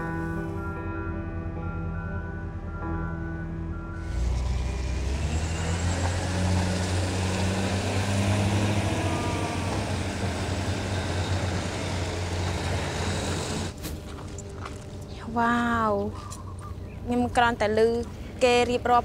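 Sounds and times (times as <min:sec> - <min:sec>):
dump truck driving past: 0:03.8 - 0:14.9.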